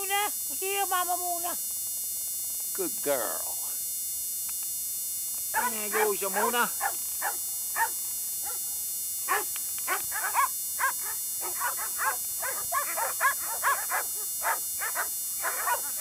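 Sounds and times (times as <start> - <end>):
dog whining and yipping: 9.3 - 15.9.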